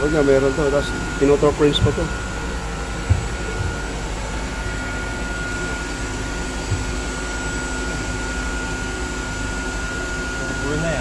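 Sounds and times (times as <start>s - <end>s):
faint high whine: 0.0s - 11.0s
ventilation and machinery hum: 0.0s - 11.0s
soft knocks: 1.8s - 2.1s, 3.0s - 4.0s.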